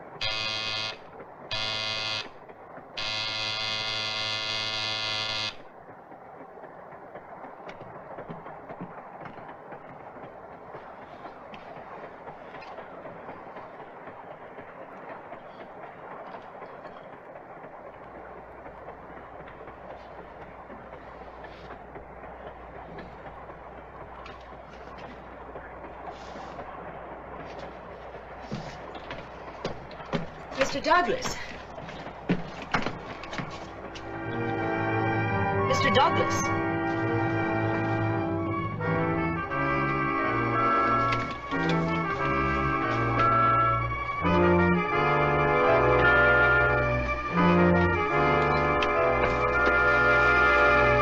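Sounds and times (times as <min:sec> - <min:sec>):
low hum: 0:00.0 - 0:51.0
buzzing train horn blast: 0:00.2 - 0:02.3, 0:03.0 - 0:05.6, 0:34.1 - 0:51.0
train rumbling: 0:04.3 - 0:51.0.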